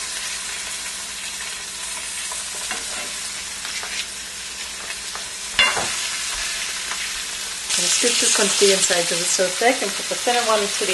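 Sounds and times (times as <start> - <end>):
fish sizzling in hot oil: 0.0 - 10.9.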